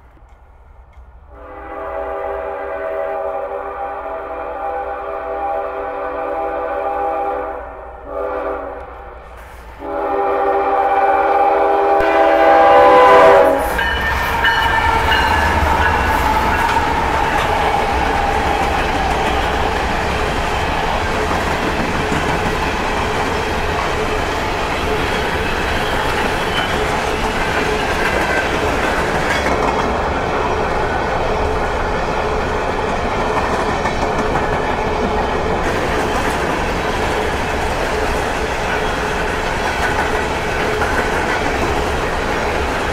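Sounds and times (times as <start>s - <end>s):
locomotive air horn: 1.3s - 17.0s
train cars rumbling over rail joints: 8.1s - 42.9s.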